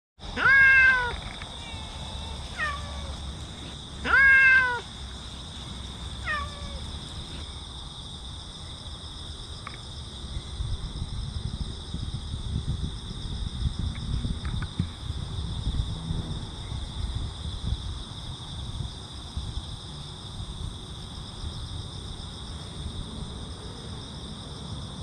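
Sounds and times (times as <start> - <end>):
cat meowing: 0.4 - 4.9, 6.2 - 6.9.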